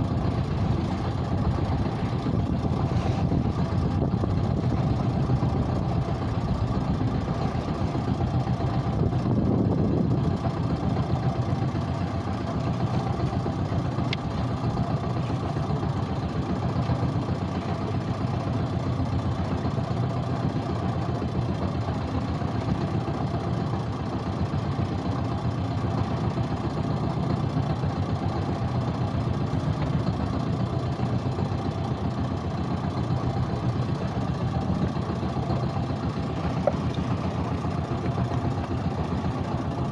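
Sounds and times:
boat engine humming: 0.0 - 39.9.

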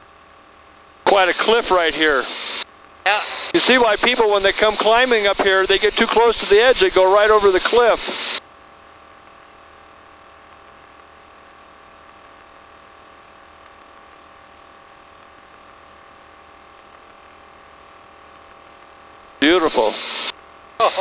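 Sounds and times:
aircraft engine drone: 1.1 - 8.4, 19.4 - 21.0.

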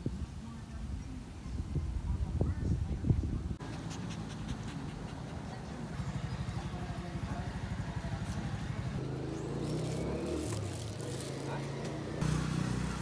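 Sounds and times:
dog panting: 3.6 - 6.0.

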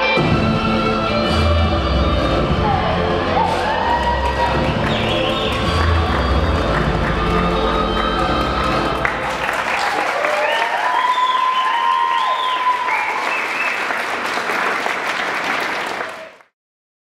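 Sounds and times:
audience applauding: 3.1 - 16.5
whoops and cheers: 3.3 - 6.3, 7.5 - 14.0.

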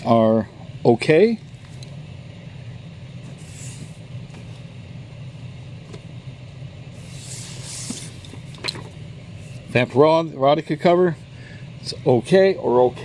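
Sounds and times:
low background hum: 0.0 - 13.0
comic books sliding against cardboard: 3.2 - 4.7, 7.0 - 8.5.

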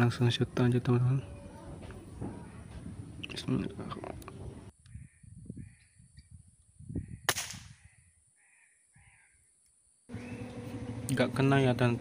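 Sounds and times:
bird harsh calls: 6.9 - 11.1
air rifle shot: 7.3 - 7.8.

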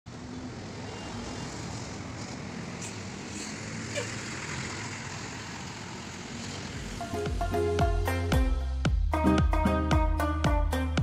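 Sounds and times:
traffic engine rumble: 0.1 - 7.7.

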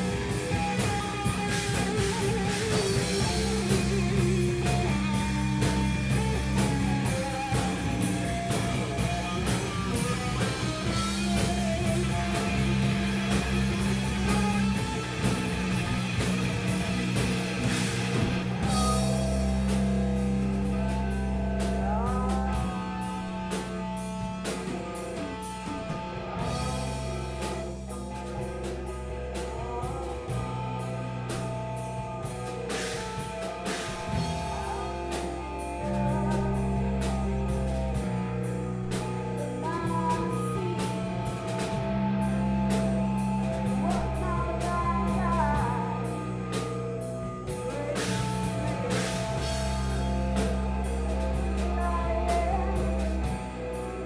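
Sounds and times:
drum kit: 0.0 - 54.0
electric guitars: 0.0 - 54.0
sustained bass notes: 0.0 - 54.0
lead vocals singing: 34.0 - 37.9, 39.4 - 42.3.

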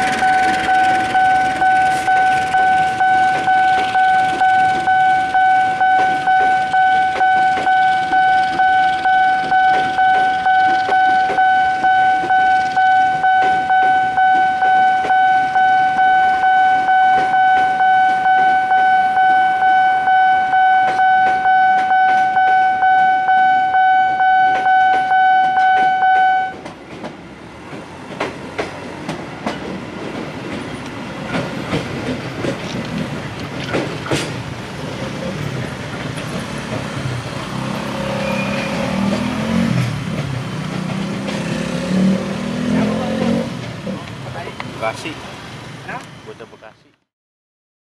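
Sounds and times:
train wheels clicking over rail joints: 0.0 - 16.0, 24.5 - 46.8
level crossing alarm pulsing: 0.0 - 26.6
road traffic: 0.0 - 47.1.

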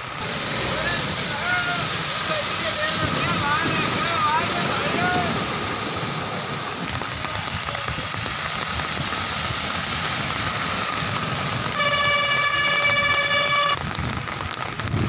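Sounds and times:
heavy rain hiss: 0.0 - 15.0
tyres swishing through water: 0.0 - 15.0
vehicle horn: 11.7 - 13.9.

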